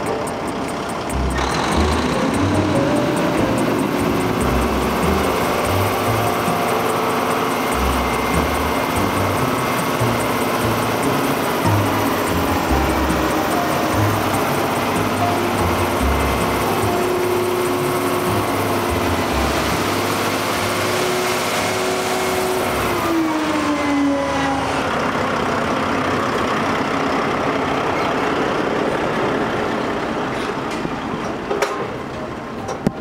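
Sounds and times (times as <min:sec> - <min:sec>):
sharp clicks: 0:00.0 - 0:20.2
diesel truck engine running: 0:00.0 - 0:33.0.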